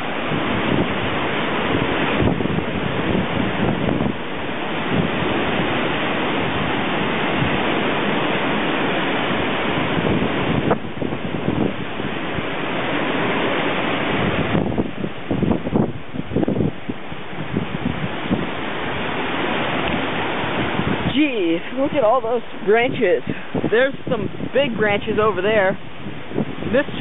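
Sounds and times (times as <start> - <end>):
strong wind rushing through trees: 0.0 - 27.0
wind buffeting microphone: 0.0 - 27.0.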